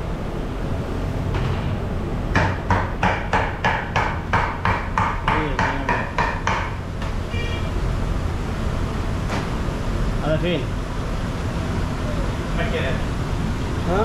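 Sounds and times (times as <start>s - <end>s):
steady low hum: 0.0s - 14.0s
metal tool tapping dough on steel: 2.4s - 6.8s.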